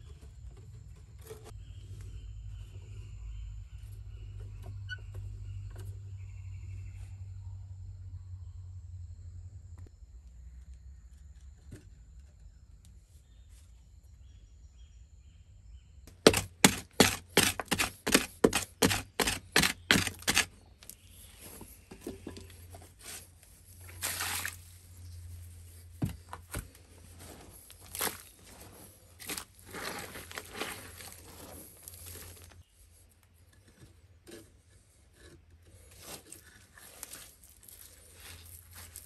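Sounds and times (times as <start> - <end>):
soil scraping and scooping: 16.1 - 39.0.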